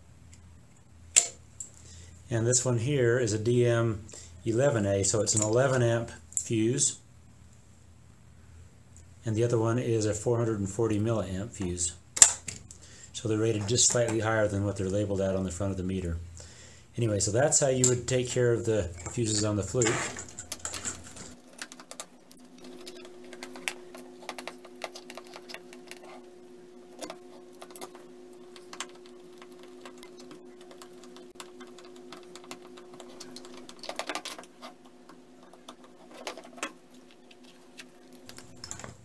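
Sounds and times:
faint steady hum: 0.0 - 39.0
plastic clicks and scrapes: 19.2 - 26.3, 27.0 - 39.0.

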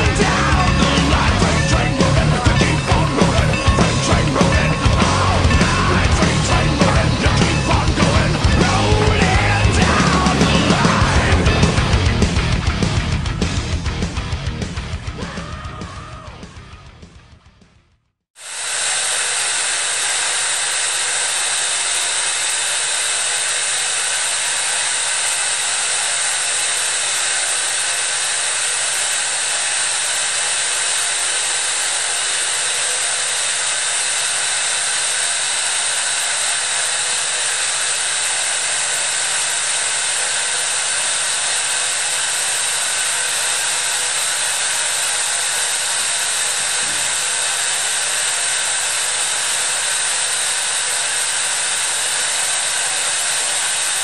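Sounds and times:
loud steam hissing: 0.0 - 13.2, 18.4 - 54.0.

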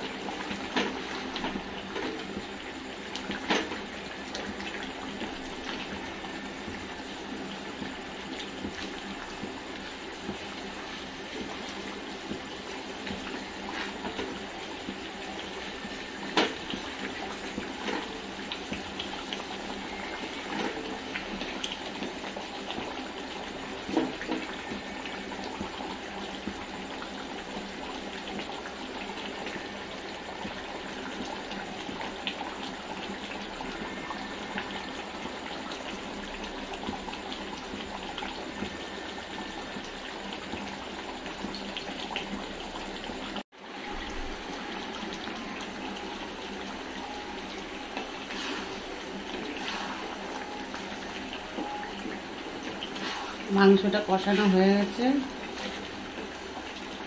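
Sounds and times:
meat sizzling and bubbling: 0.0 - 57.0.

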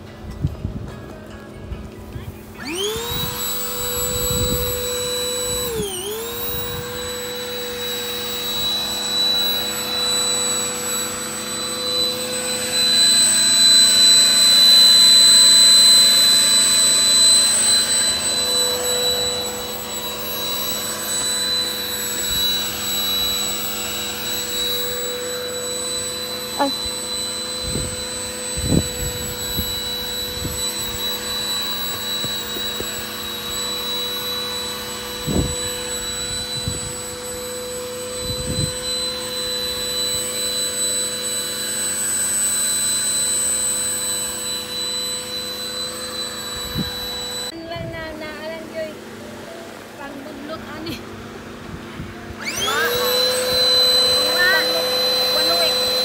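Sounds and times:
electric air pump whining: 0.0 - 56.0.

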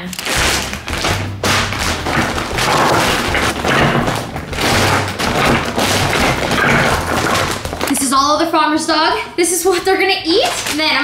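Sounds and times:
plastic bag rustling: 0.0 - 8.1, 9.6 - 11.0
dull thumps: 0.2 - 8.2.

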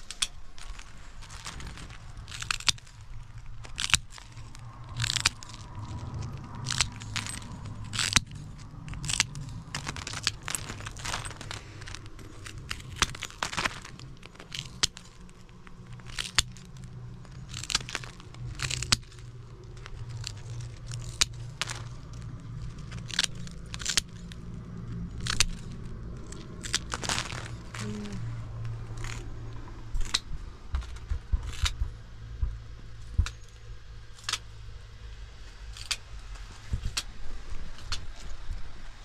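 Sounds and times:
metal nippers cracking block: 0.0 - 5.7, 6.6 - 22.3, 22.9 - 24.3, 35.7 - 36.0
steady low hum: 0.0 - 39.0.

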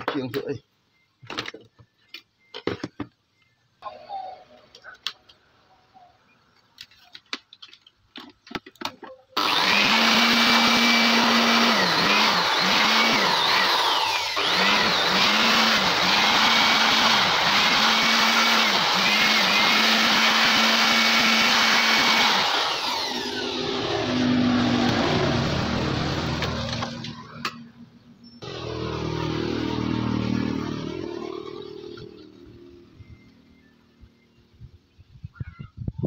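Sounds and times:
machine whirring: 28.4 - 32.6.

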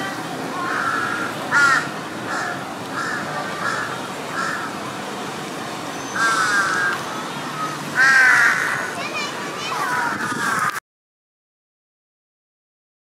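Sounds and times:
crows cawing: 0.6 - 4.8, 6.2 - 7.0, 7.6 - 9.0, 9.8 - 10.8.

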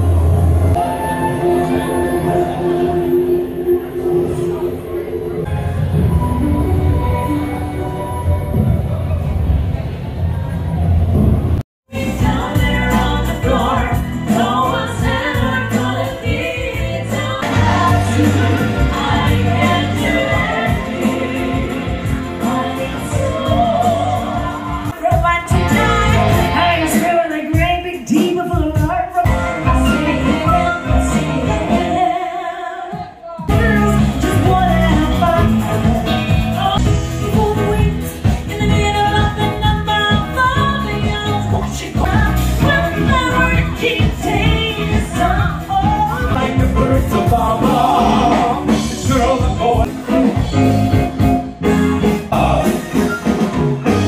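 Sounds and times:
live band playing: 0.0 - 54.0
woman singing into a microphone: 22.4 - 46.6.

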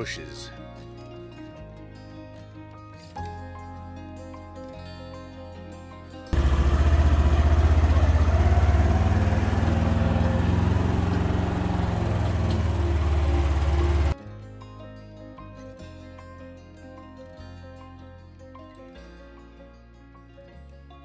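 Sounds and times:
background music: 0.0 - 6.3, 8.1 - 21.0
utility vehicle engine running: 6.4 - 14.2.

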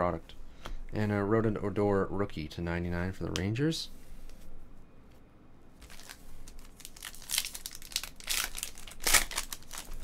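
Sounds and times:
foil wrapper crinkling and tearing: 5.8 - 10.0.

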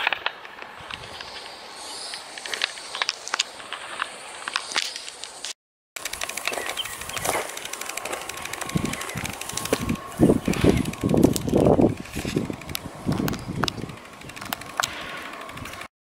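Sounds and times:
footsteps crunching through dry grass: 0.7 - 12.5.

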